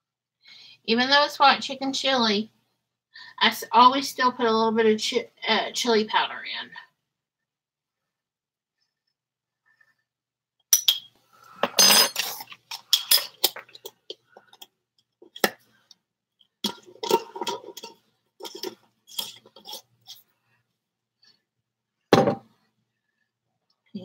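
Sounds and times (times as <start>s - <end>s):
metal spoons and pots clinking: 10.7s - 14.7s, 16.6s - 20.2s.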